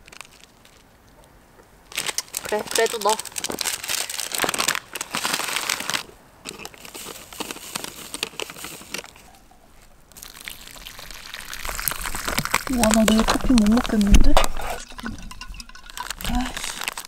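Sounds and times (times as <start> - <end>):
plastic packet crinkling: 0.0 - 0.9, 1.9 - 17.0
water pouring into packet: 10.1 - 17.0.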